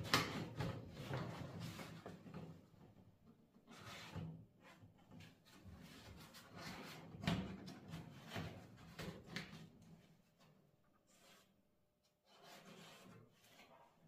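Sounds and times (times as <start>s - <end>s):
cardboard scraping on sheet metal: 11.1s - 11.5s, 12.2s - 14.0s.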